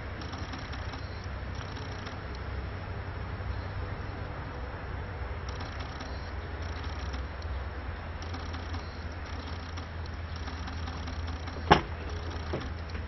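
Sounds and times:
low outdoor rumble: 0:00.0 - 0:13.0
sharp click: 0:05.5 - 0:07.5.

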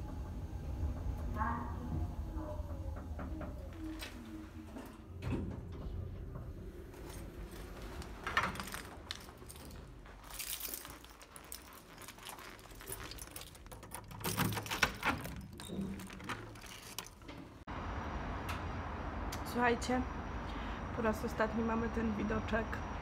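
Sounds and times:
handling rustle: 0:07.0 - 0:17.6
keys jangling: 0:07.0 - 0:17.6.

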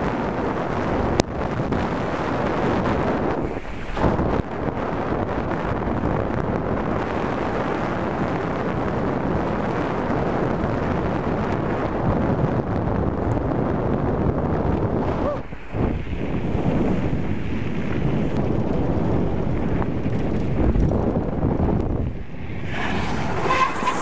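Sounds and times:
wind on microphone: 0:00.0 - 0:24.0
bicycle tyres rolling on gravel: 0:00.1 - 0:24.0
bicycle bump: 0:15.7 - 0:24.0.

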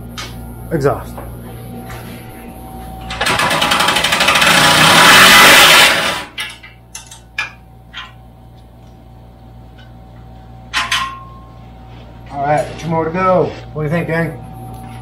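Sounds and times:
power tool buzzing: 0:02.7 - 0:06.4.

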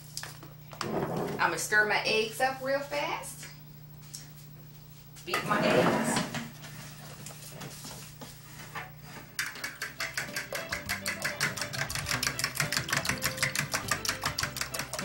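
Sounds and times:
fork beating eggs in glass bowl: 0:09.4 - 0:15.0.

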